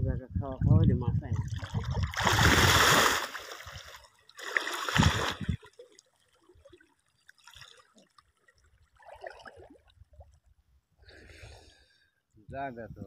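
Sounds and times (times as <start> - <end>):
heavy splashing in water: 1.5 - 5.7.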